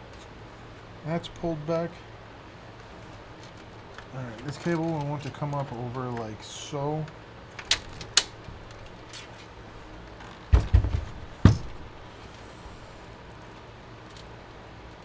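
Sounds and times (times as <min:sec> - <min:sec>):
dull thumps of pc case: 0:10.5 - 0:11.9.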